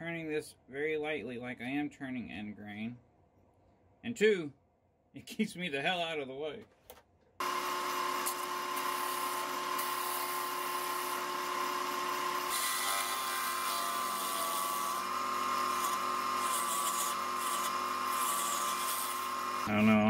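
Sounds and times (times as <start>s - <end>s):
tool cutting wood hiss: 7.4s - 19.8s
wood lathe motor whine: 7.4s - 20.0s.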